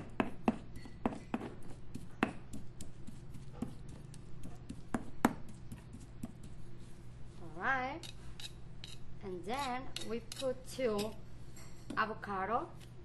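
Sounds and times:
pestle tapping and grinding in stone mortar: 0:00.0 - 0:06.6.

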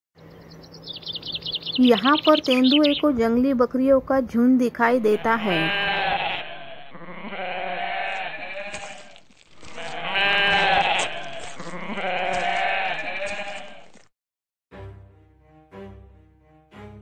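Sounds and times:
goats bleating: 0:05.0 - 0:14.0
music: 0:14.7 - 0:17.0.

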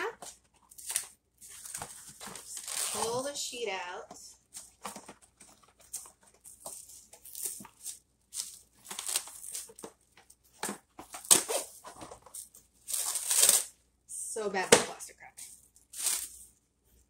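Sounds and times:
cling wrap crinkling: 0:00.3 - 0:03.3, 0:04.5 - 0:13.7, 0:15.5 - 0:16.5.

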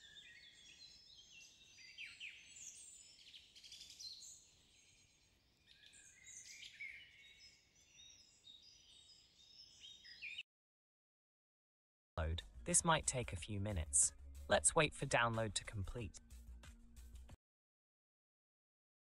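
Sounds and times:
small birds chirping and trilling: 0:00.0 - 0:10.4.

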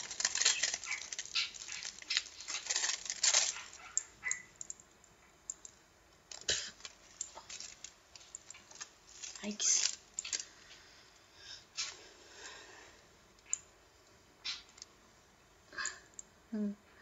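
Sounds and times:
aluminium foil crinkling: 0:00.0 - 0:04.4, 0:06.3 - 0:10.8.

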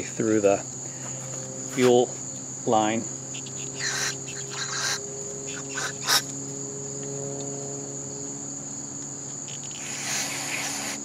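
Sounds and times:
high-pitched insect trill: 0:00.0 - 0:11.0.

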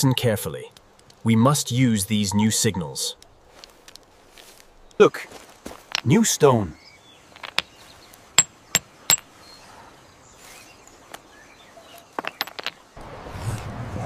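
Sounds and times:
hammerstone striking rock: 0:08.4 - 0:09.3.

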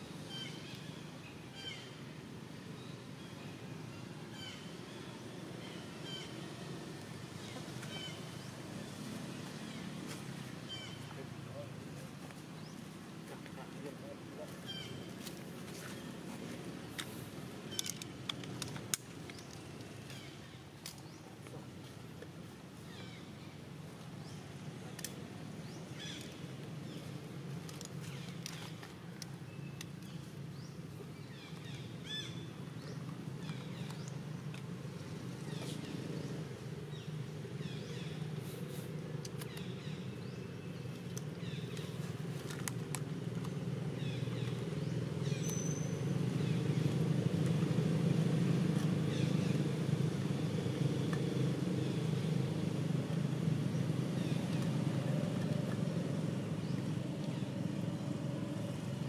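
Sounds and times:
vehicle engine running: 0:41.4 - 0:59.0.

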